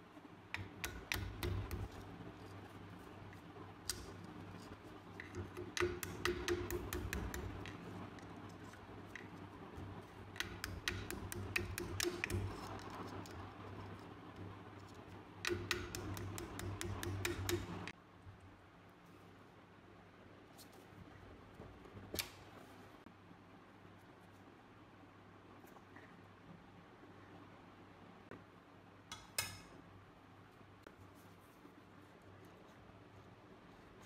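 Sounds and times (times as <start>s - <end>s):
hammer tapping metal punch: 0.6s - 2.0s, 5.2s - 7.8s, 10.3s - 12.8s, 15.4s - 17.9s.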